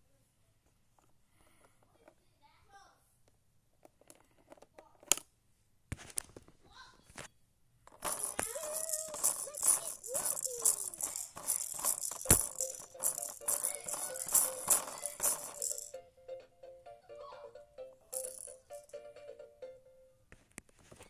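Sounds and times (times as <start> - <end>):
toy roller ball rattling: 7.9 - 16.0, 18.1 - 19.0.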